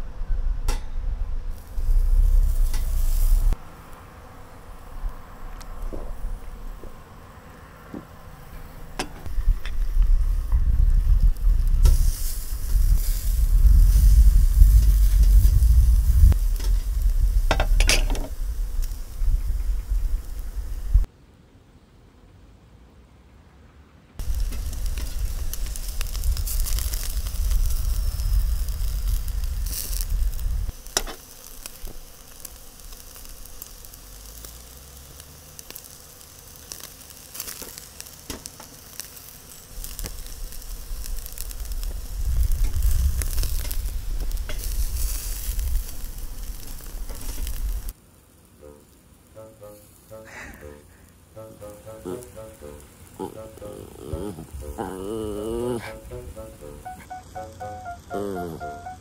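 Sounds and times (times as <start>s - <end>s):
low rumble: 0.0s - 3.6s, 9.3s - 21.1s, 24.2s - 30.7s
meat sizzling on a grill: 1.5s - 6.8s, 9.0s - 21.1s, 24.2s - 59.0s.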